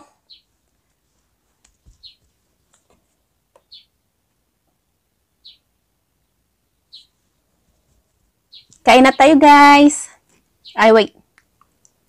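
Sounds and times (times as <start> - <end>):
bird chirping: 0.1 - 0.6, 1.9 - 2.9, 3.5 - 4.0, 5.3 - 12.0.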